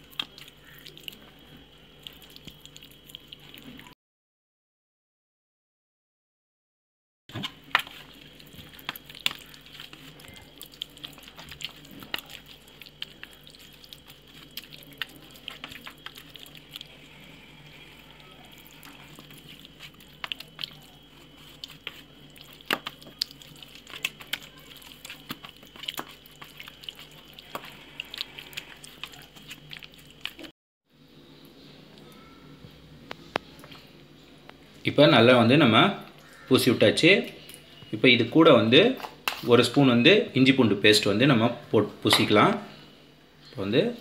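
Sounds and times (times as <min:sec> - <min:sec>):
hands squelching marinade: 0:00.0 - 0:03.9, 0:07.3 - 0:30.5.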